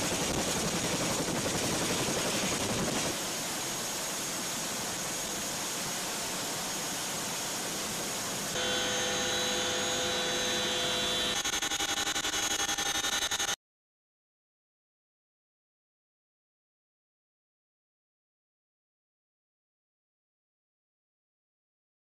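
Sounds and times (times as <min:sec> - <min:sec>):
helicopter rotor and turbine noise: 0:00.0 - 0:13.6
steady multi-tone whine: 0:00.0 - 0:13.6.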